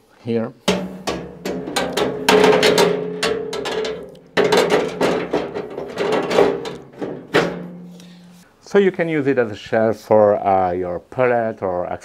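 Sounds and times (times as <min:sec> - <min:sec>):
metal shelf knocking and clanking: 0:00.6 - 0:08.4.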